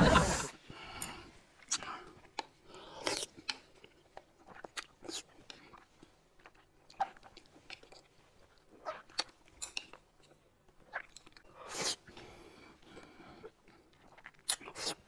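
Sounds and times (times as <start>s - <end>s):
people chewing soft food: 0.0s - 15.0s.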